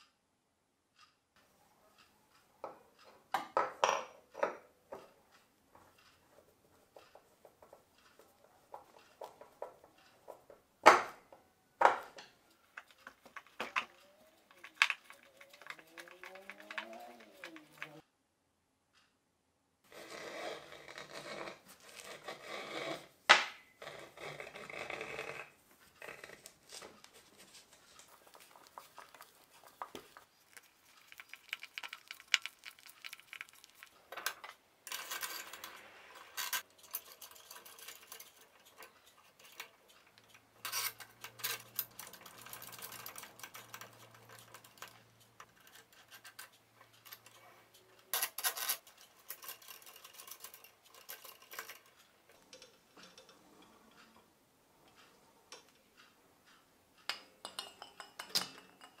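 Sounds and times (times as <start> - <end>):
small metal parts clinking: 12.2 - 18.0, 27.5 - 54.0.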